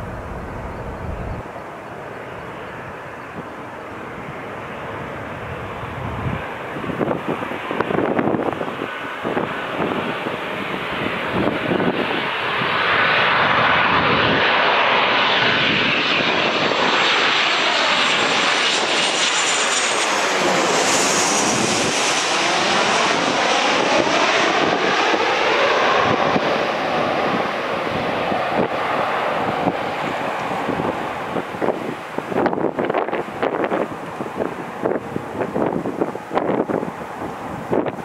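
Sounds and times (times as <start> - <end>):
high fan whine dropping in pitch: 0.0 - 4.6, 15.6 - 38.0
jet engines roaring overhead: 0.0 - 38.0.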